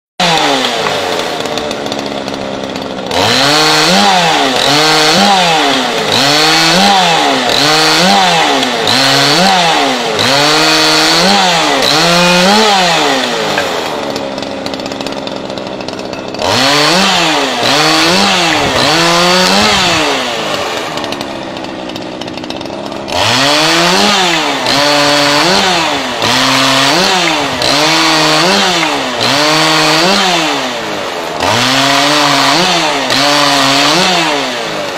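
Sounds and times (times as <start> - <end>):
chainsaw cutting branches: 0.2 - 34.9.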